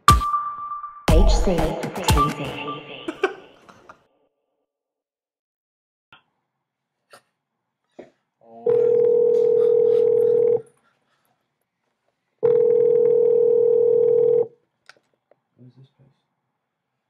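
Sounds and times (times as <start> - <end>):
phone ringback tone: 8.7 - 10.6, 12.4 - 14.5.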